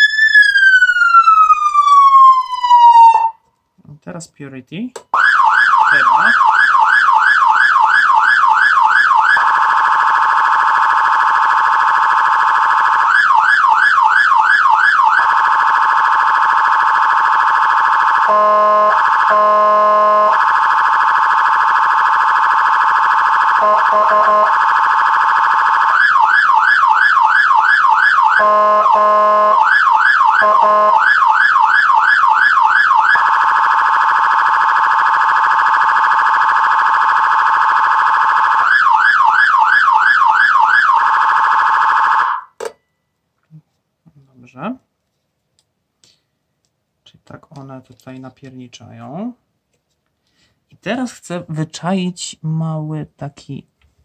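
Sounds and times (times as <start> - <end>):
electronic siren wailing: 0.0 - 3.4, 5.2 - 42.6
siren horn tone bursts: 18.2 - 20.5, 23.6 - 24.6, 28.3 - 29.7, 30.4 - 31.2.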